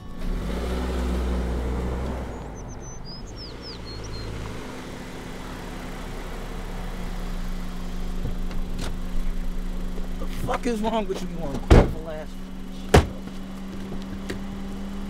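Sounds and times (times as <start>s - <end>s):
car engine rumbling: 0.0s - 15.0s
bird chirping: 2.1s - 5.5s.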